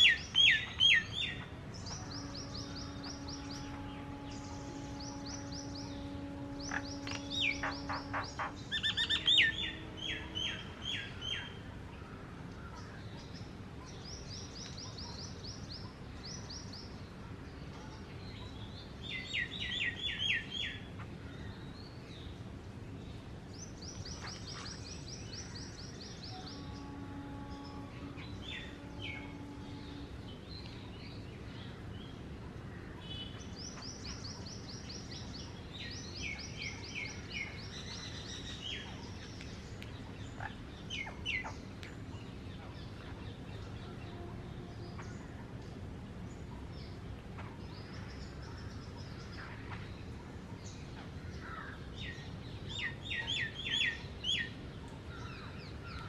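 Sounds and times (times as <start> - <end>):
high chirping trills: 0.0 - 11.6.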